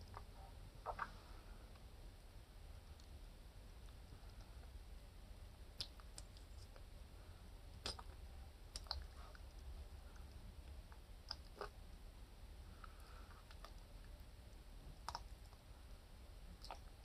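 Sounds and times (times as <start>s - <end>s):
low steady hum: 0.0s - 17.0s
sharp clicks of eating seafood: 8.7s - 9.1s.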